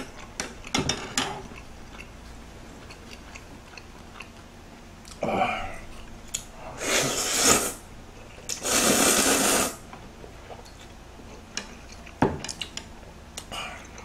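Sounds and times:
loud noodle slurps: 6.8 - 7.8, 8.5 - 9.8.

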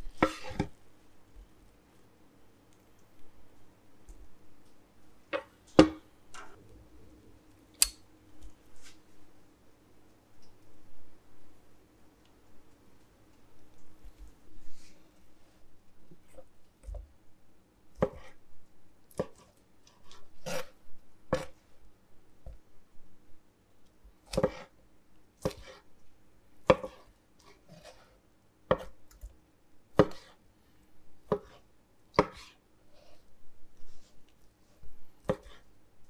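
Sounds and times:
knife chopping on wooden board: 18.0 - 18.4, 24.3 - 24.7, 25.4 - 25.8, 26.6 - 27.0, 28.7 - 29.0, 30.0 - 30.4, 31.3 - 31.6, 32.2 - 32.5, 35.2 - 35.6.

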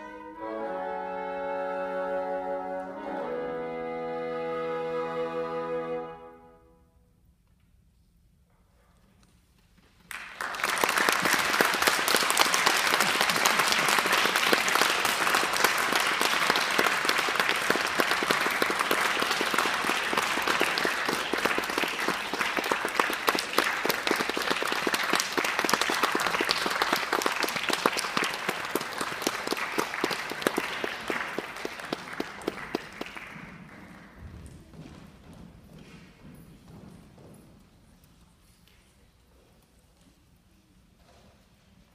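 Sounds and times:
audience applauding: 10.1 - 34.3.

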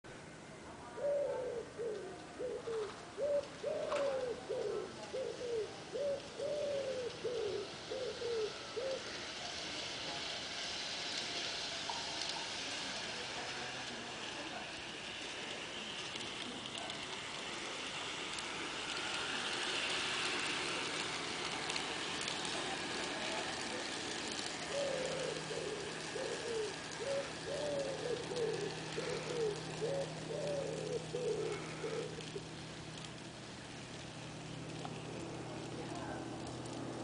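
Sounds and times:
pigeon cooing: 0.9 - 9.2, 23.3 - 32.6
model locomotive motor hiss: 7.7 - 29.8.

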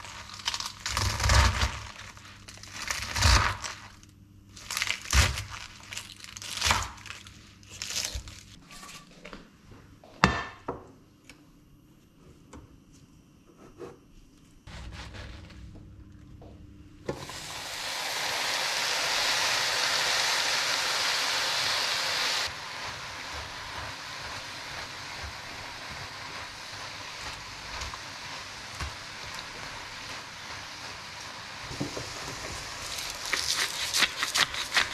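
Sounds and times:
spinach sizzling in pan: 17.1 - 34.9.

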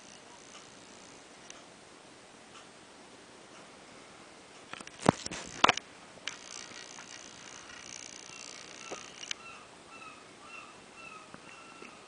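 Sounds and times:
faint high whine of clock movement: 0.0 - 12.0.

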